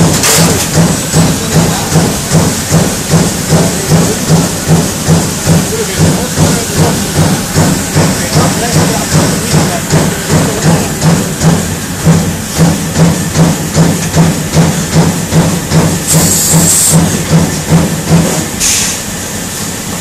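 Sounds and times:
machine rhythmic pulsing hum: 0:00.0 - 0:20.0
air hisses: 0:16.0 - 0:17.2, 0:18.6 - 0:19.7.

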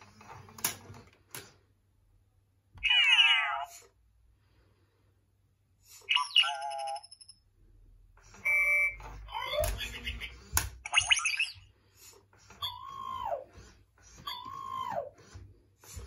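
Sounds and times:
toy robot electronic chirps: 0:06.1 - 0:07.3, 0:08.4 - 0:11.6.

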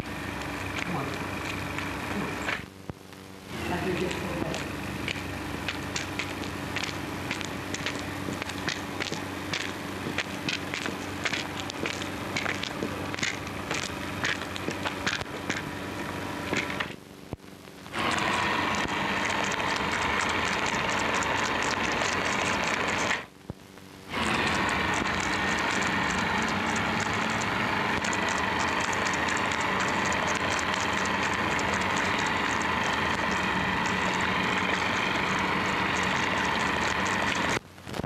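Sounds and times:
faint steady whine: 0:00.0 - 0:38.0
film soundtrack hiss and crackle: 0:00.0 - 0:38.0.

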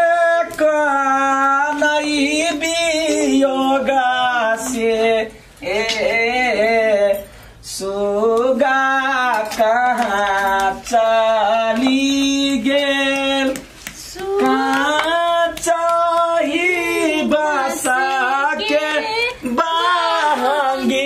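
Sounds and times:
woman breathing: 0:07.2 - 0:07.6
woman singing folk song: 0:16.9 - 0:21.0.

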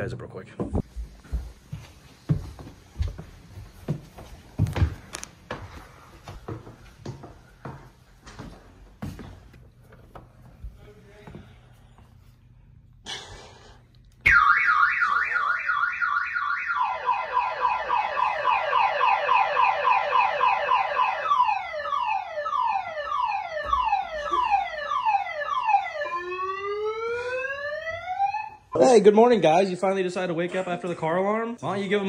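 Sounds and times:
car alarm siren: 0:14.2 - 0:28.8.

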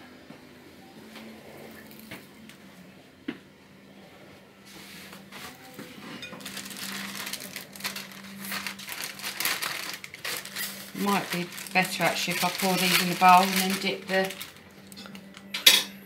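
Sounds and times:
plastic bag crinkling: 0:06.2 - 0:15.5.

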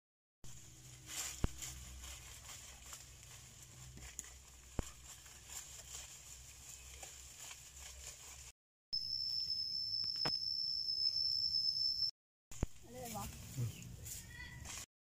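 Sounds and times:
leaves rustling: 0:00.5 - 0:08.5, 0:12.9 - 0:14.9.

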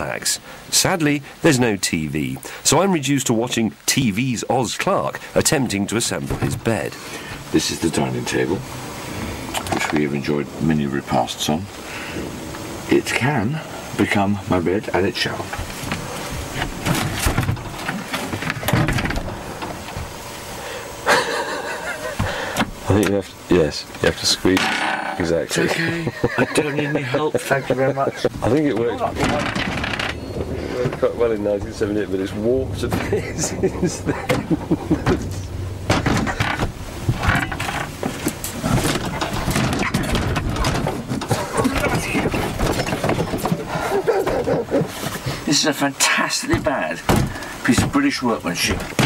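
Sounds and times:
table panels knocking and rattling: 0:16.6 - 0:19.8, 0:35.9 - 0:43.7, 0:46.5 - 0:48.0.

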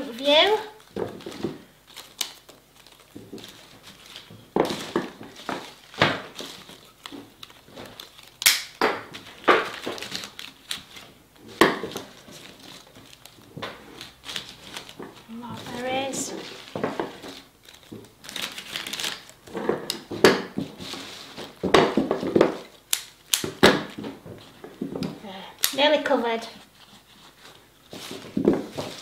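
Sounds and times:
foliage rustling and crinkling: 0:00.0 - 0:29.0
scissors snipping stems: 0:22.9 - 0:23.6, 0:25.0 - 0:25.8.

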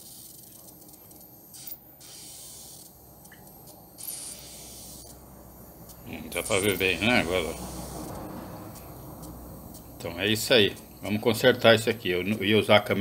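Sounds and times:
air hissing from puncture: 0:00.0 - 0:11.1.

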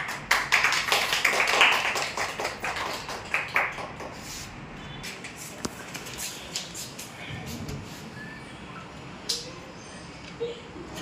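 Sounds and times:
sharp clap: 0:00.0 - 0:04.2
group of people clapping: 0:00.0 - 0:04.4.

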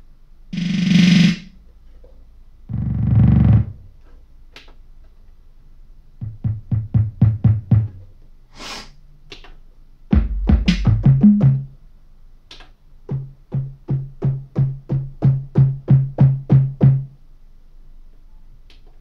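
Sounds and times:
electronic drum notes: 0:06.2 - 0:08.0, 0:10.1 - 0:11.7, 0:13.1 - 0:17.1.

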